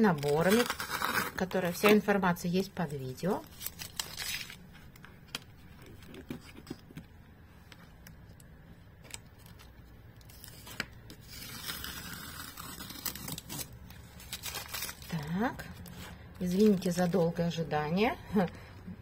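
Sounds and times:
masking tape peeling off paper: 0:00.2 - 0:01.4, 0:03.5 - 0:04.6, 0:10.2 - 0:15.2
paper rustling: 0:03.4 - 0:08.0, 0:09.0 - 0:17.4.

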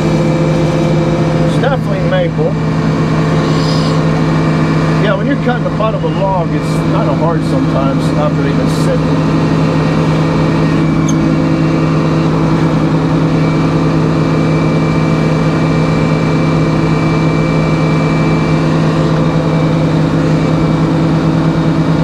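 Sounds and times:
band sawmill cutting log: 0:00.0 - 0:14.4
high saw blade whine: 0:00.0 - 0:22.0.

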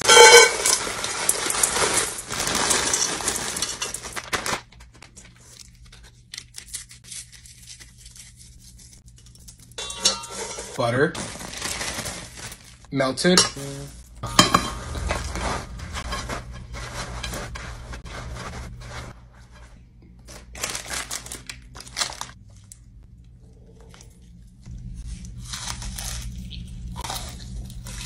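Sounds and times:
cereal poured into metal pot: 0:00.0 - 0:04.0
paper crumpling: 0:00.6 - 0:09.6, 0:11.2 - 0:12.9, 0:20.3 - 0:22.4
low steady hum: 0:03.1 - 0:28.0.

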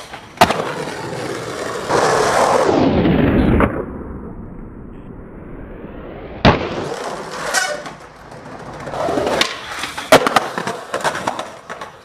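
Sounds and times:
skateboard wheels rolling: 0:00.0 - 0:03.8, 0:06.4 - 0:12.0
skateboard clacking: 0:06.9 - 0:12.0
skateboard clatter and knocks: 0:07.0 - 0:12.0.

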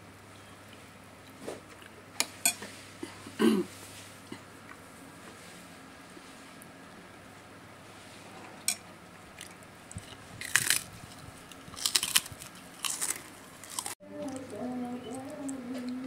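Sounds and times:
cracker crunching: 0:08.7 - 0:14.5.

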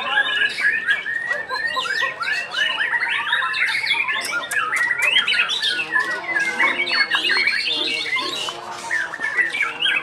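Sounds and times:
songbird singing: 0:00.0 - 0:10.0.

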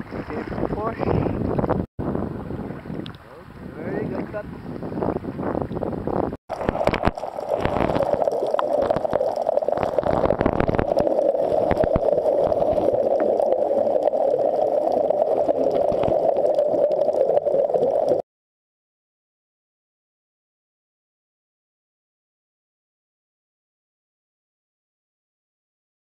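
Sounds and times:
wind on microphone: 0:00.0 - 0:08.2, 0:08.8 - 0:13.2
water lapping: 0:00.0 - 0:16.2
underwater bubbling and clicks: 0:02.9 - 0:03.2, 0:05.1 - 0:18.2.

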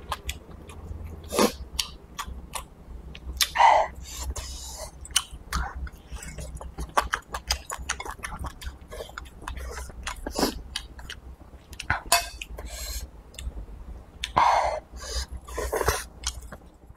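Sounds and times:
wet chewing: 0:04.2 - 0:12.6.

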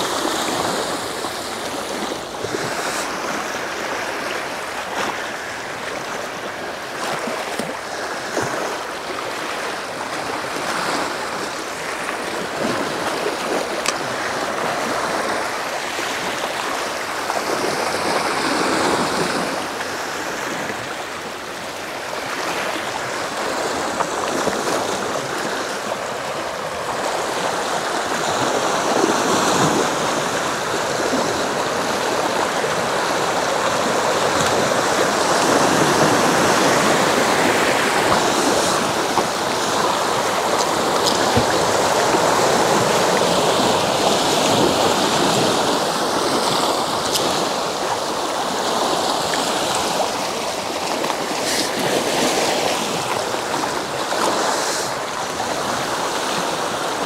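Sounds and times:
waves washing against rocks: 0:00.0 - 0:57.0.

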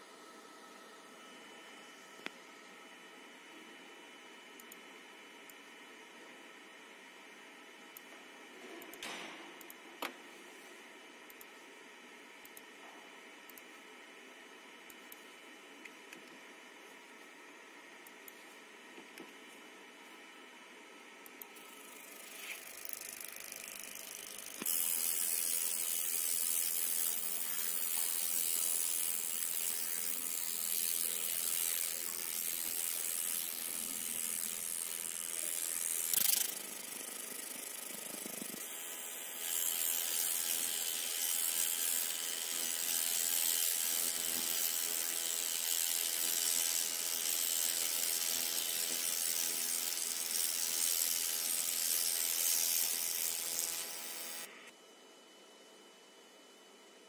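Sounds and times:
faint machine hum: 0:00.0 - 0:57.0
laser cutter hissing on metal: 0:24.4 - 0:54.5.

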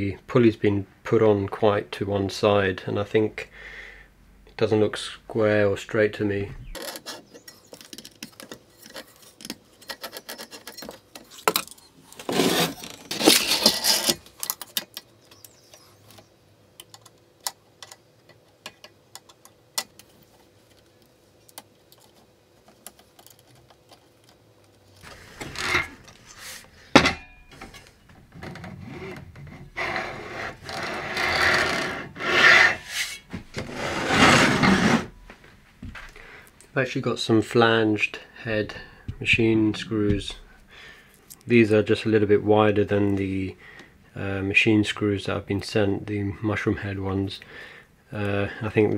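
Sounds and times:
scraping and rubbing: 0:06.6 - 0:15.1, 0:21.8 - 0:26.8, 0:27.6 - 0:35.2.

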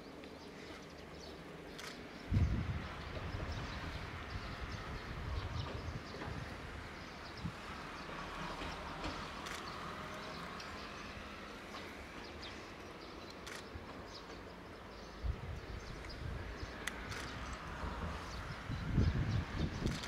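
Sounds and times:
small clicks: 0:01.7 - 0:02.0, 0:08.6 - 0:10.3, 0:13.2 - 0:13.8, 0:16.8 - 0:17.7
wind buffeting microphone: 0:02.2 - 0:09.6, 0:15.1 - 0:20.0.

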